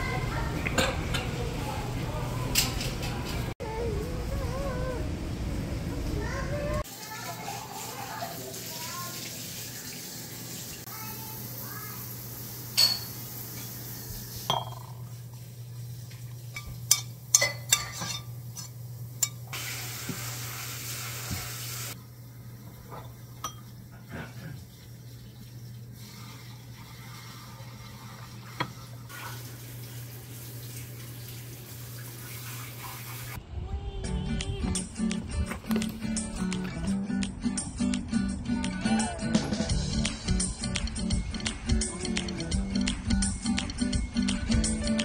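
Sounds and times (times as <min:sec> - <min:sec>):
spoon clinking on pots and bowls: 0:12.7 - 0:15.2, 0:16.5 - 0:19.5, 0:22.9 - 0:23.8.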